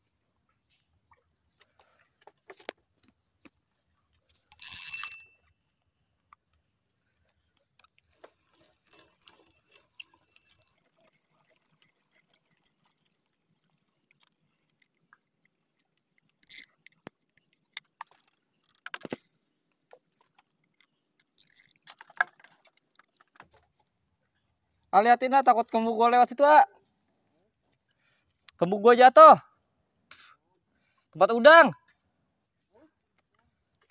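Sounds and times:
fishing reel clicks and rattles: 4.3 - 5.5, 7.8 - 19.3, 20.4 - 23.4
sharp clicks and knocks: 15.8 - 19.3.

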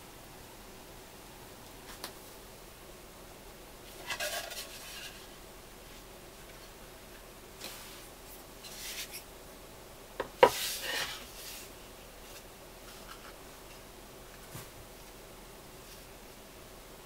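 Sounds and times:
clay mould rubbing and sliding: 10.4 - 13.4.

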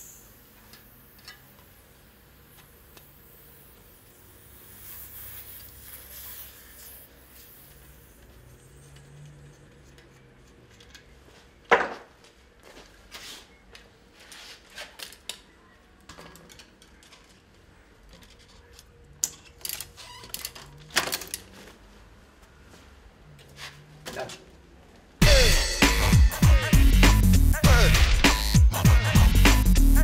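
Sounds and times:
bicycle wheel and tools clattering: 0.6 - 1.8.

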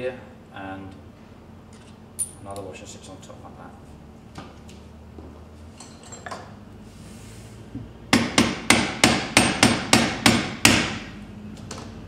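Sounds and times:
hammer tapping on metal: 8.1 - 11.0.

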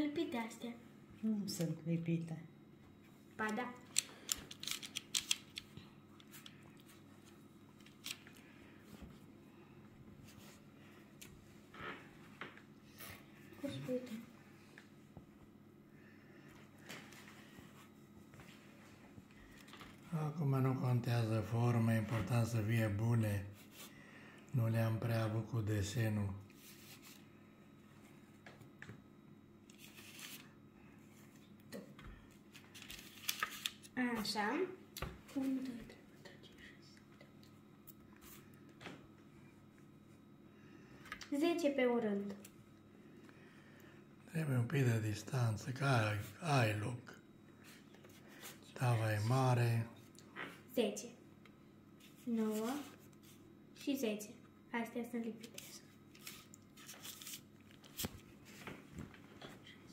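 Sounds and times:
parchment paper rustling: 4.0 - 8.4, 26.6 - 27.3, 29.7 - 31.4, 32.3 - 34.0, 52.0 - 54.0, 55.4 - 59.2.

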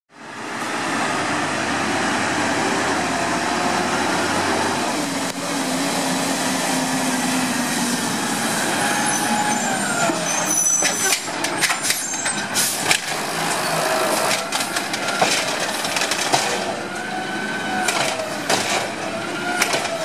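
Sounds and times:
truck engine whine: 0.1 - 20.0
tyres hissing on wet pavement: 0.2 - 14.8.

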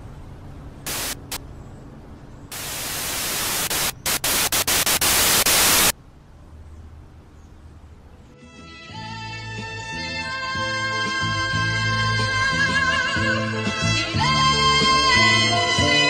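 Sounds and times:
low hum: 0.0 - 6.9
static hiss bursts: 0.9 - 1.4, 2.5 - 6.0.

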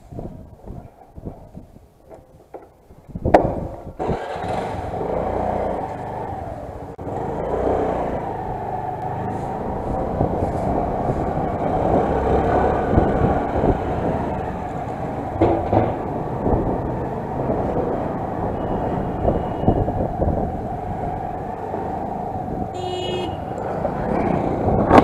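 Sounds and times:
motorcycle engine rumbling: 0.0 - 25.0
road noise: 0.0 - 25.0
sharp knocks: 2.1 - 3.7, 15.4 - 16.1.

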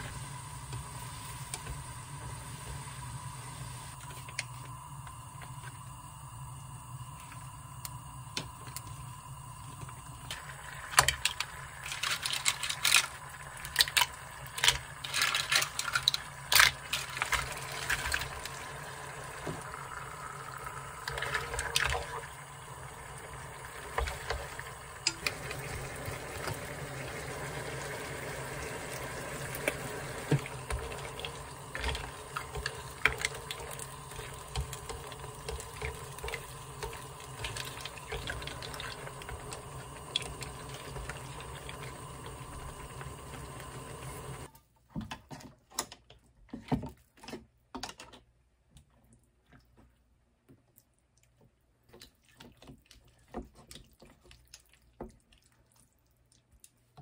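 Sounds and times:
liquid pouring: 6.7 - 44.5
sauce simmering in a pan: 17.5 - 44.5.

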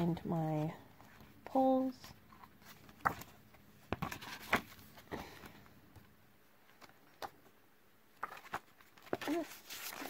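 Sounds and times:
paper pages flipping: 2.3 - 5.2, 8.2 - 10.0.

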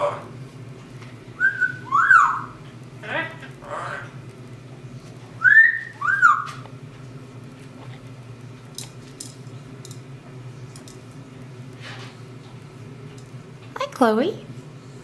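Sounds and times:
parrot whistling: 1.4 - 2.6, 5.4 - 6.6.

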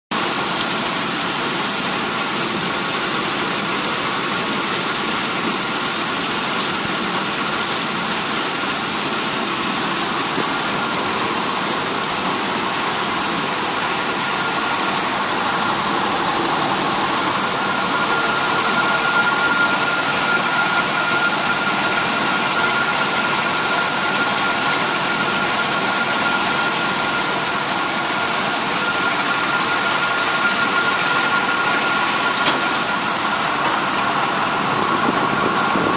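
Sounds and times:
high steady whine: 0.2 - 35.9
vibration motors rattling and humming: 1.0 - 35.9.

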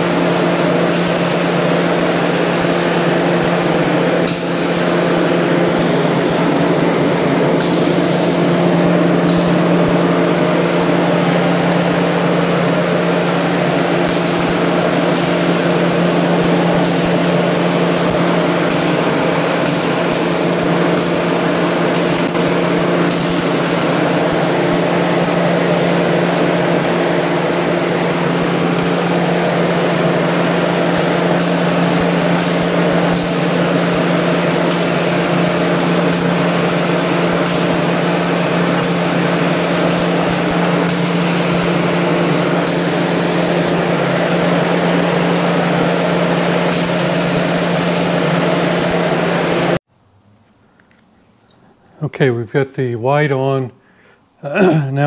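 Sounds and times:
paint spray gun hissing: 0.0 - 0.3, 0.9 - 1.7, 4.2 - 4.9, 7.6 - 8.6, 9.2 - 9.9, 14.0 - 24.0, 31.3 - 43.8, 46.7 - 48.2
motor hum: 0.0 - 49.8.

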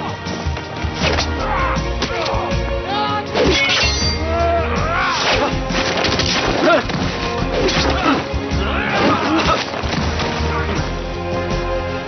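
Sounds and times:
dramatic music: 0.0 - 12.0
men shouting and grunting: 1.2 - 11.0
sword strikes: 3.4 - 4.2
whacks and crashes of blows: 5.2 - 8.2.

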